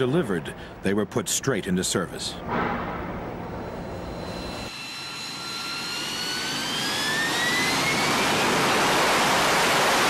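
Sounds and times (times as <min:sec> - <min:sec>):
jet engine spooling up: 0:03.6 - 0:10.0.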